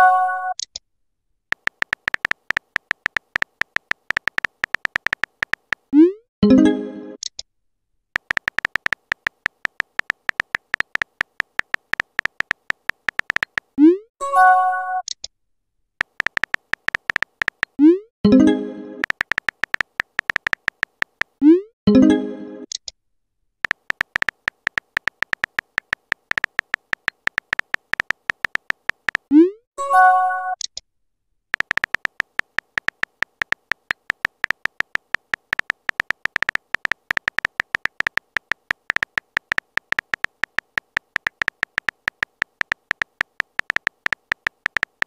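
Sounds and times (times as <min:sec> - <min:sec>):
keyboard tap clicks: 0:01.5 - 0:05.9, 0:08.2 - 0:13.8, 0:16.0 - 0:17.8, 0:19.0 - 0:21.4, 0:23.6 - 0:29.3, 0:31.5 - 0:45.0.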